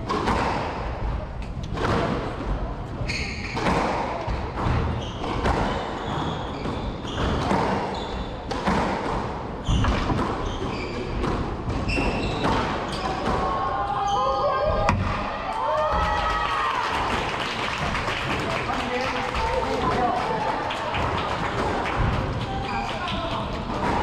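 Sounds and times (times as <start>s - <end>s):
squash ball hits: 0.0s - 1.1s, 1.7s - 2.4s, 3.1s - 13.6s, 14.7s - 16.0s, 23.6s - 24.0s
shoes squeaking on court floor: 3.0s - 3.8s, 4.6s - 8.6s, 9.6s - 13.3s.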